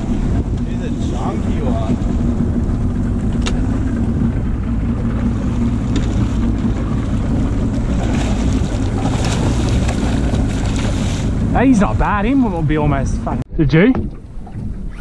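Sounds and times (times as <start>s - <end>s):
outboard motor idling: 0.0s - 15.0s
wind rumble on microphone: 0.0s - 15.0s
fish splashing in water: 5.0s - 11.5s.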